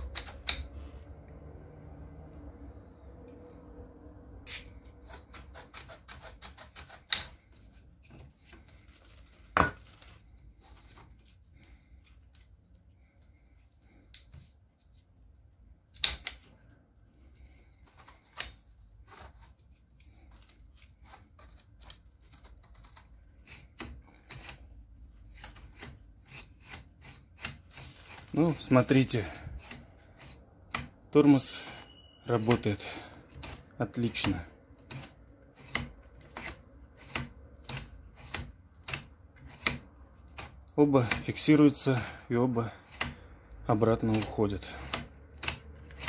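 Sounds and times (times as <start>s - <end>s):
plastic parts clicking and knocking: 0.0s - 1.1s, 15.8s - 46.0s.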